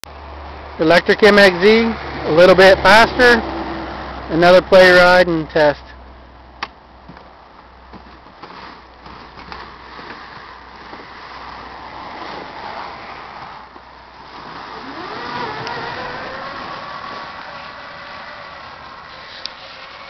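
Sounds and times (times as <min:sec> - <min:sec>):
electric drive whine: 0:13.3 - 0:20.0.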